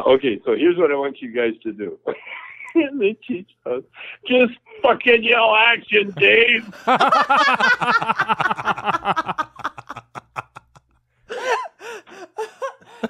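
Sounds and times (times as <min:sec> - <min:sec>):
hearty laughter: 0:06.1 - 0:13.0.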